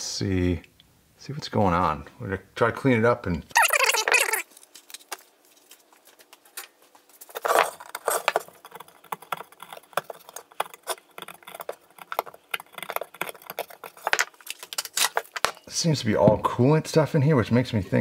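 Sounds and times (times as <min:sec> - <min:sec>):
screwdriver scraping metal: 0:07.3 - 0:14.2.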